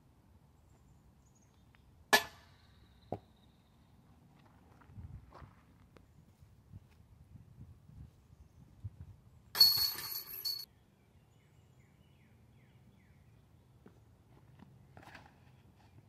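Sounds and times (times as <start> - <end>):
disc hitting basket chains: 9.5 - 10.7.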